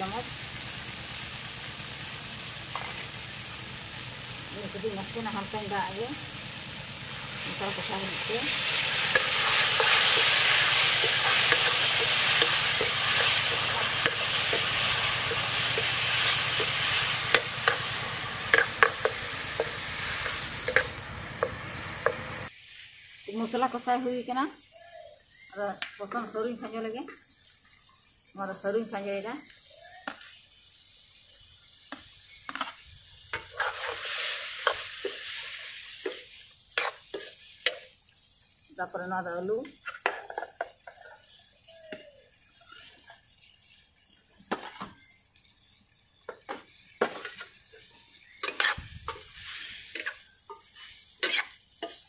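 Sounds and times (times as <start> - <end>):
sauce sizzling in a pan: 0.0 - 52.0
steel ladle clinking against pot: 18.5 - 21.0.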